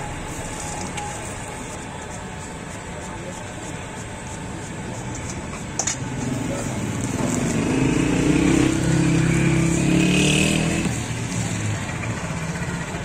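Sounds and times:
vehicle engine passing by: 0:06.1 - 0:13.0.

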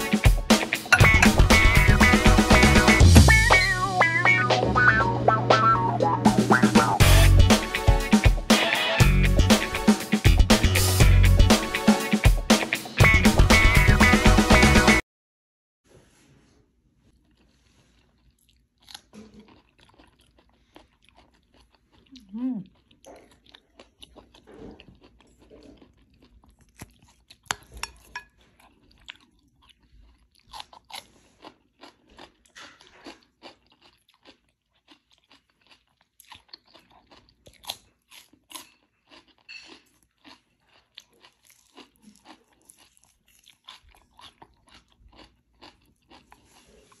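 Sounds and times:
wet chewing: 0:17.1 - 0:47.0
crisp crunching: 0:28.7 - 0:47.0.

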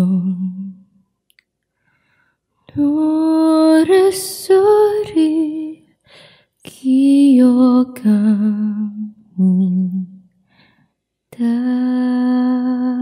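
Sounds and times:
woman singing unaccompanied: 0:02.8 - 0:05.8, 0:06.7 - 0:10.1, 0:11.3 - 0:13.0.

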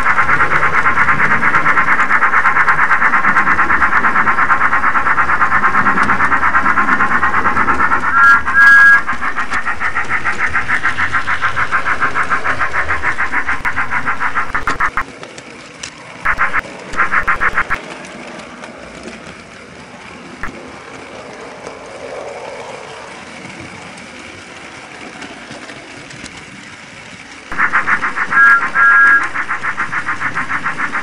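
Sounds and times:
toy steam engine chuffing: 0:00.0 - 0:18.4, 0:23.1 - 0:31.0
quiet steady running noise: 0:22.8 - 0:31.0.

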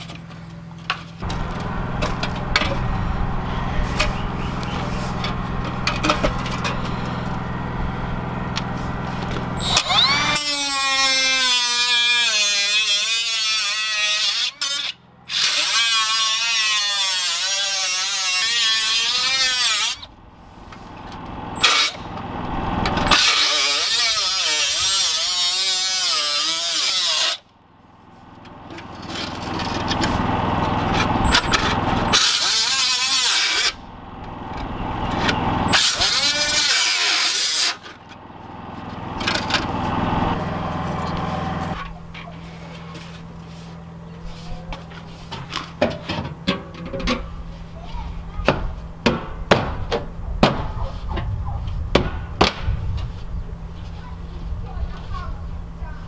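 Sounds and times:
power tool cutting steel pipe: 0:09.3 - 0:20.1, 0:21.6 - 0:22.1, 0:22.8 - 0:27.4, 0:30.9 - 0:33.9, 0:35.2 - 0:38.0.

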